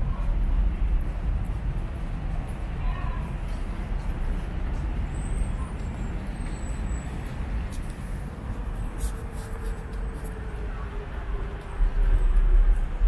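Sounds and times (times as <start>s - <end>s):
distant traffic rumble: 0.0s - 13.0s.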